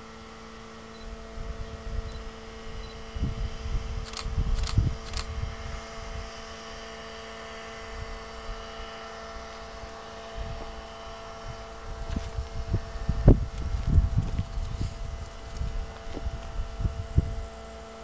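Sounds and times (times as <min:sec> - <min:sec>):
distant locomotive engine hum: 0:00.0 - 0:18.0
wind on microphone: 0:01.2 - 0:06.5, 0:10.3 - 0:17.6.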